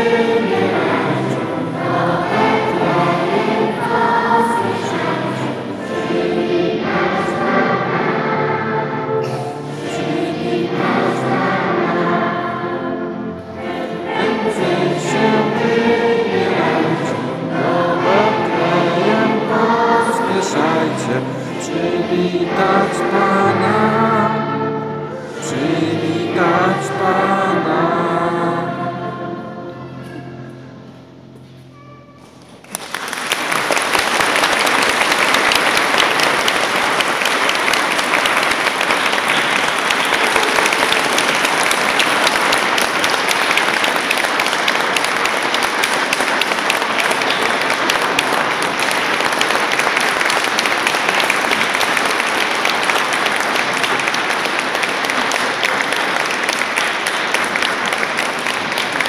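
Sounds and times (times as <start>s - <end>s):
audience applauding: 32.4s - 59.0s.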